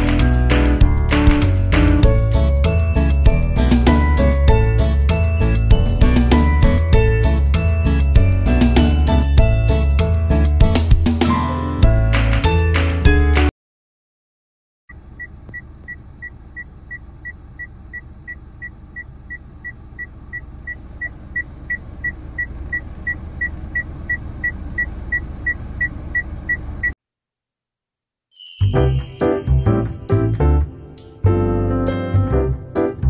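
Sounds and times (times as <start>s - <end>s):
music: 0.0s - 13.5s, 28.4s - 33.0s
car engine idling: 14.9s - 26.9s.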